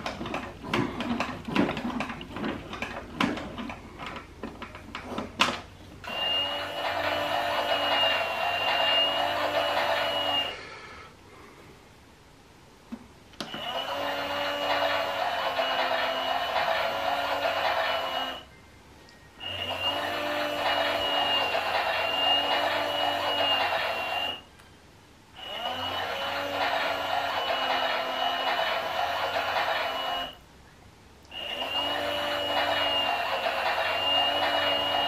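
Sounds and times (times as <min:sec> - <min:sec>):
toy washing machine motor whirring: 0:06.0 - 0:10.6, 0:13.4 - 0:18.5, 0:19.4 - 0:24.4, 0:25.4 - 0:30.4, 0:31.3 - 0:35.0.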